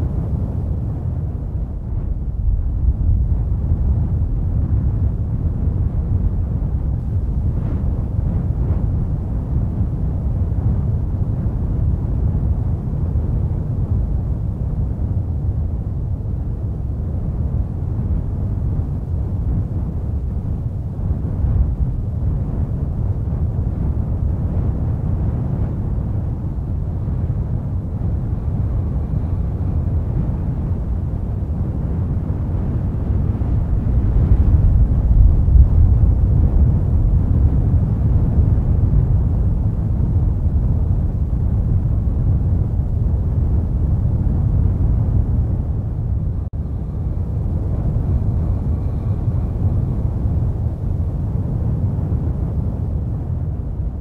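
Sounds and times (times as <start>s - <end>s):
deep rumble of erupting volcano: 0.0s - 54.0s.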